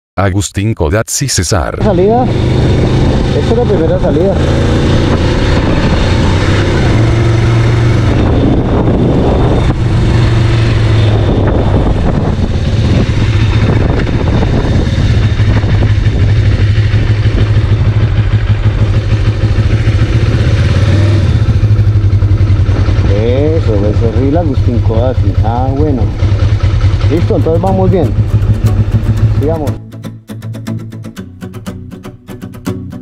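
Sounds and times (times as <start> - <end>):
motorcycle engine running: 1.8 - 29.9
wind rushing over microphone: 2.2 - 24.2.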